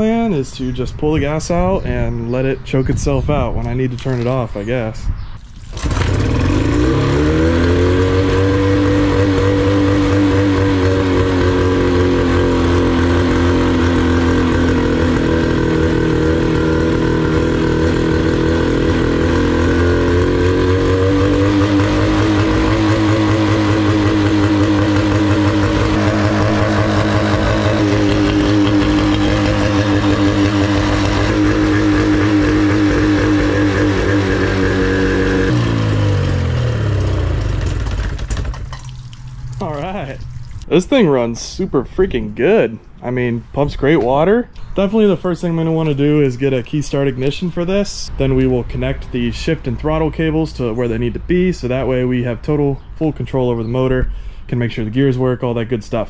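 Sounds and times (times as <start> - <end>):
outboard motor idling: 5.6 - 40.9.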